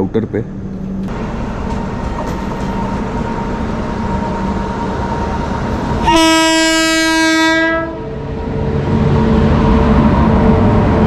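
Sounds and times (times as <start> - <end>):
train rumbling: 0.0 - 11.0
locomotive horn blast: 6.0 - 8.1.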